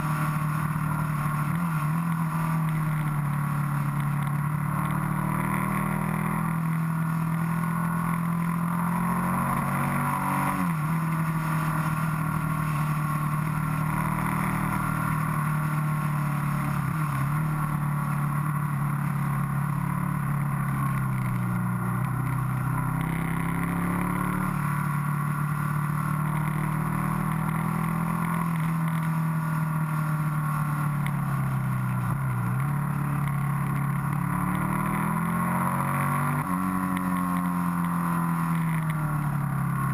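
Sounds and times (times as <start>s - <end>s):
motorcycle engine: 0.0s - 39.9s.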